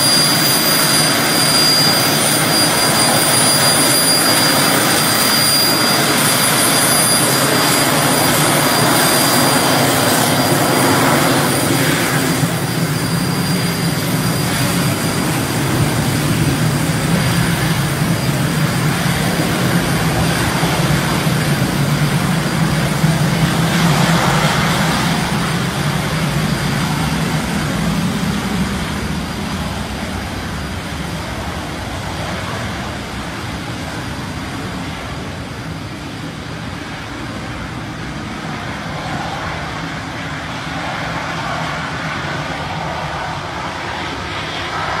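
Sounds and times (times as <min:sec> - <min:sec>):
jet engines taxiing: 0:00.0 - 0:45.0.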